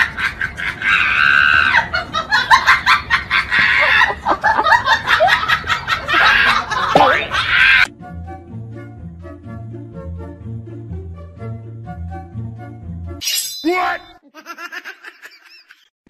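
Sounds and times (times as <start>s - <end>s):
people laughing loudly: 0.0s - 7.9s, 14.2s - 15.9s
light background music: 7.6s - 13.2s.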